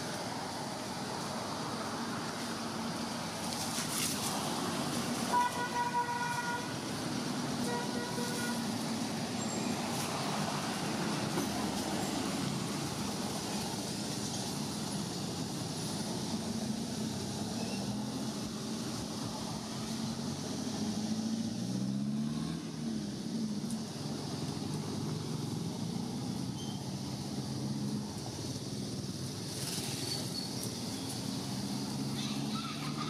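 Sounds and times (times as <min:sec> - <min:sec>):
road traffic: 0:00.0 - 0:33.0
vehicle horn toots: 0:05.3 - 0:06.7, 0:07.6 - 0:08.6.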